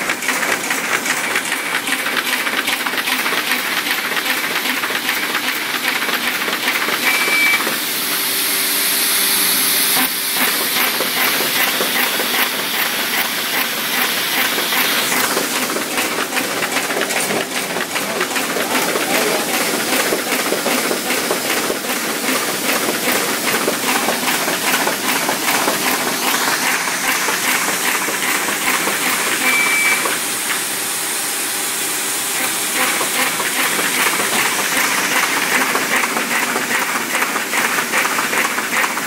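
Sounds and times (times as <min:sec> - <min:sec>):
paper folding machine clattering: 0:00.0 - 0:07.8, 0:10.3 - 0:30.7, 0:32.3 - 0:39.0
short high beep: 0:07.0 - 0:07.6, 0:29.4 - 0:30.0.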